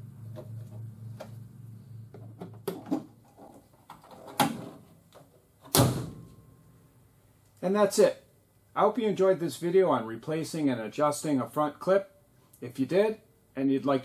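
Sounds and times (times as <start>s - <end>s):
car hood slamming shut: 5.7s - 6.4s.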